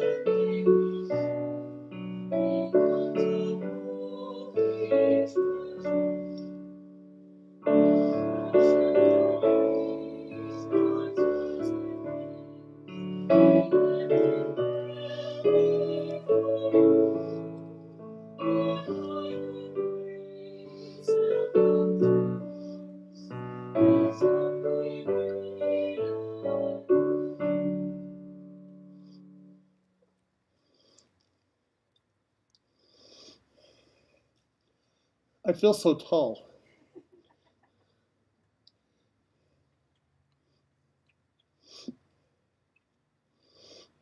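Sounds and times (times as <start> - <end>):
piano playing a hymn: 0.0 - 29.6.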